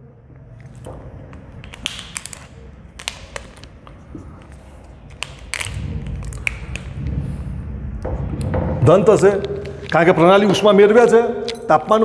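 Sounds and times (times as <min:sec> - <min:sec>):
low rumble: 0:04.0 - 0:09.9.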